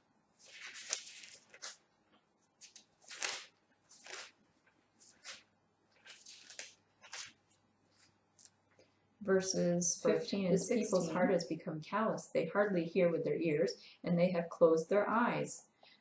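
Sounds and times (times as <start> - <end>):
book pages turning: 0.3 - 8.6.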